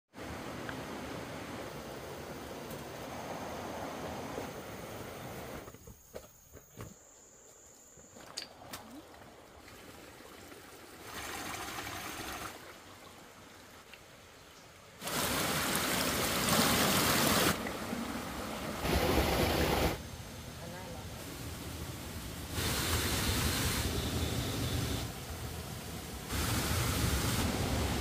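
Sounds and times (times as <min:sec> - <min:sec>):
running water rushing: 0:08.5 - 0:28.0.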